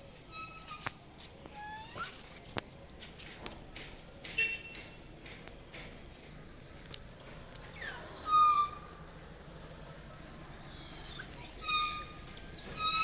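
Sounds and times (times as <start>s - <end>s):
high-pitched sliding animal calls: 10.5s - 13.0s.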